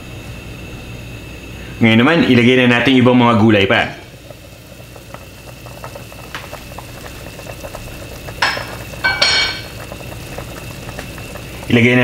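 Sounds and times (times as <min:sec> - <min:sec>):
broth boiling in a pot: 0:00.0 - 0:12.0.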